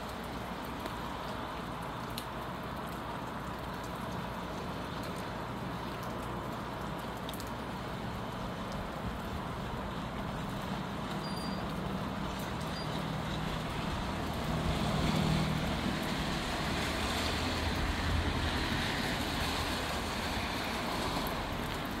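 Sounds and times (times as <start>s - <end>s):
rain and wind hiss: 0.0s - 22.0s
road traffic passing: 7.7s - 22.0s.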